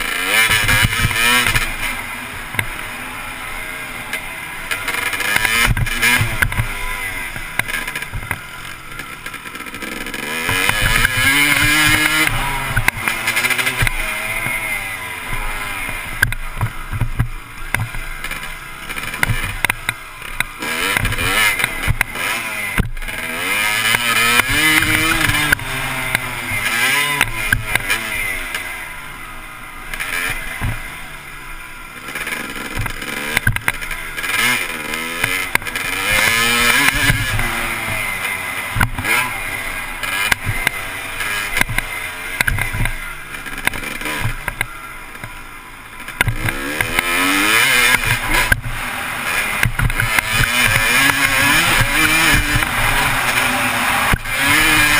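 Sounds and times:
dirt bike engine revving: 0:00.0 - 0:54.9
sharp knocks from riding: 0:09.0 - 0:14.6, 0:15.3 - 0:23.1, 0:23.7 - 0:28.0, 0:32.1 - 0:34.6, 0:35.2 - 0:39.3, 0:40.0 - 0:45.4, 0:46.1 - 0:48.8, 0:49.6 - 0:53.5.

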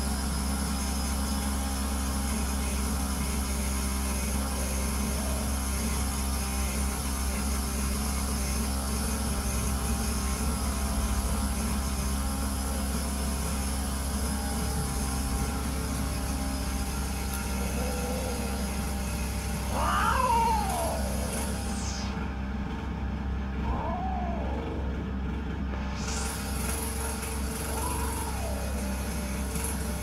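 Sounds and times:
steady low rumble: 0:14.9 - 0:27.8
cat yowling: 0:17.4 - 0:22.2, 0:23.6 - 0:24.9, 0:27.7 - 0:28.9.

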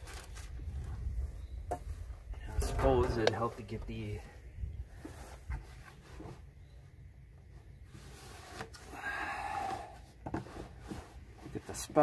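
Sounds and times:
scraping rustle: 0:07.5 - 0:08.9, 0:10.2 - 0:12.0.

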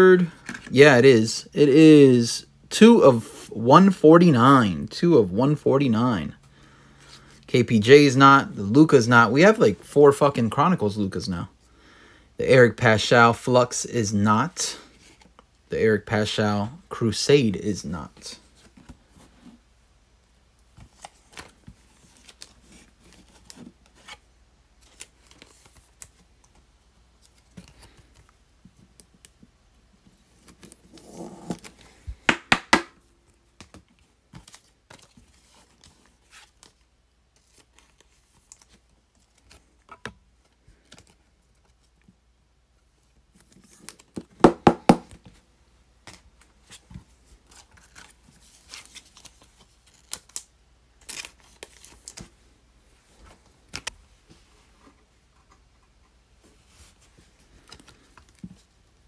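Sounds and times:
cards and plastic holders handled: 0:00.2 - 0:00.8, 0:18.0 - 0:19.7, 0:20.6 - 0:58.8.

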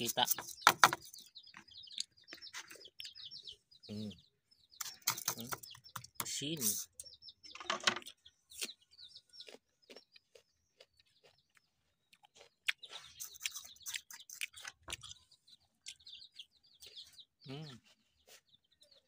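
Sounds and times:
small birds chirping: 0:00.0 - 0:19.0
chewing crisp mango: 0:01.5 - 0:03.2, 0:08.0 - 0:19.0
mouth clicks: 0:12.2 - 0:15.2.

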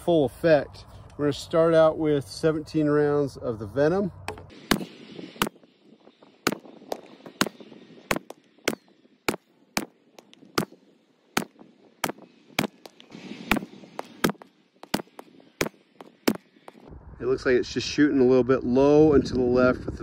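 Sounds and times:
rifle gunshots: 0:04.6 - 0:05.6.

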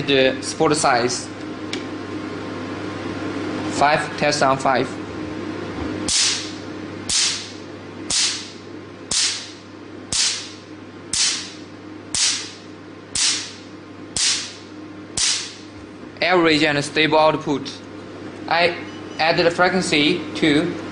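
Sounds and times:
machine humming: 0:00.0 - 0:20.9
laser pulse snapping with hiss: 0:06.1 - 0:12.6, 0:13.2 - 0:13.6, 0:14.2 - 0:14.6, 0:15.2 - 0:15.6.

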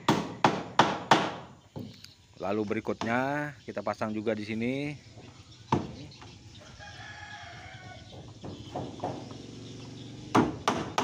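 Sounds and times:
hammer striking nail into wood: 0:00.1 - 0:01.5, 0:10.3 - 0:11.0
rooster crowing: 0:06.5 - 0:08.2.

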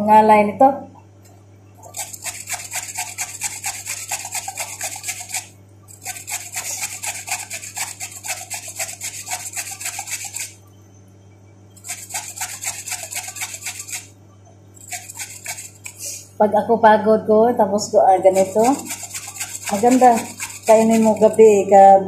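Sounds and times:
carrot rasping on metal grater: 0:01.9 - 0:10.5, 0:11.8 - 0:14.1, 0:14.8 - 0:16.0, 0:18.3 - 0:21.4.

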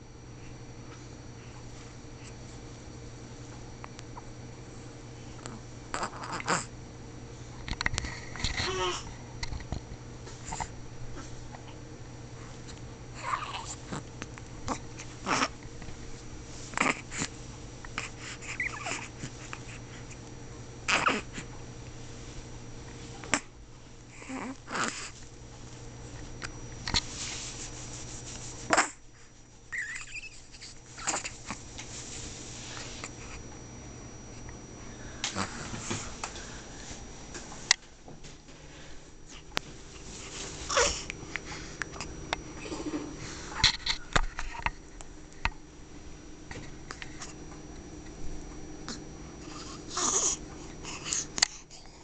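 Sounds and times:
steady low hum: 0:00.0 - 0:52.0
baby grunting and squeaking: 0:06.0 - 0:06.7, 0:13.2 - 0:13.7, 0:14.7 - 0:15.5, 0:20.9 - 0:21.3, 0:29.7 - 0:31.3.

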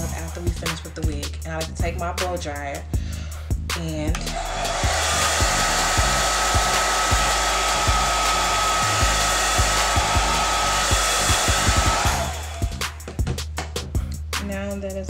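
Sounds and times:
hair dryer running: 0:04.2 - 0:13.1.

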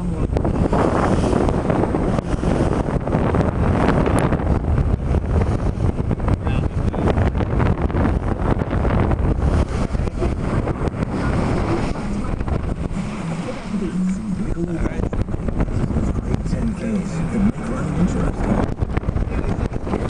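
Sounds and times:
water rushing along a hull: 0:00.0 - 0:20.0
wind buffeting the microphone: 0:00.0 - 0:20.0.

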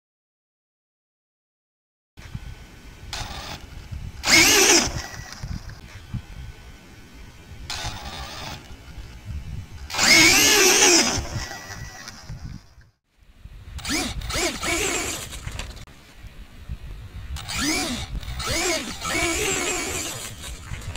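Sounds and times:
wind rumble on microphone: 0:02.2 - 0:20.9
electric motor whine: 0:03.1 - 0:06.6, 0:07.7 - 0:12.4, 0:13.8 - 0:15.8, 0:17.3 - 0:20.9.

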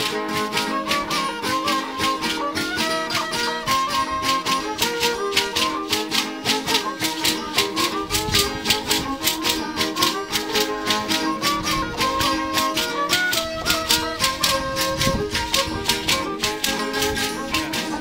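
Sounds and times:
ankle rattles shaking: 0:00.0 - 0:18.0
violin playing dance tune: 0:00.0 - 0:18.0.

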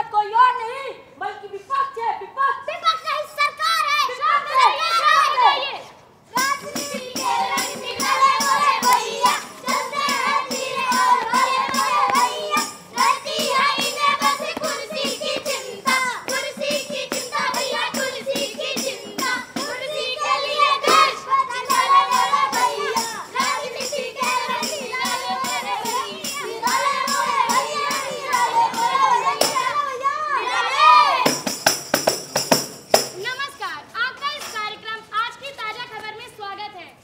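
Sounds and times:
frame drum beat: 0:06.4 - 0:29.7, 0:31.2 - 0:33.2
children singing: 0:06.4 - 0:31.3.

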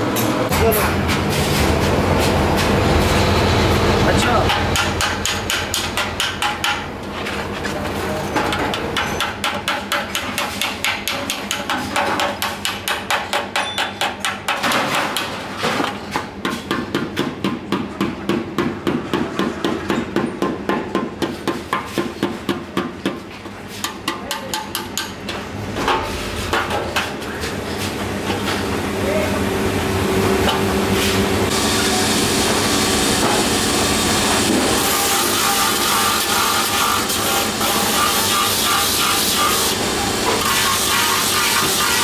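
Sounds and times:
hammer beating sheet steel: 0:04.1 - 0:06.9, 0:08.5 - 0:27.2.

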